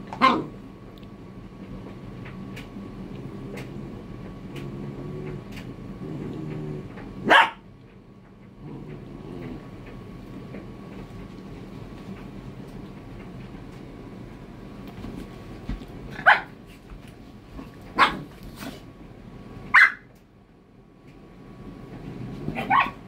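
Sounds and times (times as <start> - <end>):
dog barking: 0.2 - 0.5, 7.2 - 7.6, 16.2 - 16.5, 18.0 - 18.3, 19.7 - 20.1, 22.5 - 23.0.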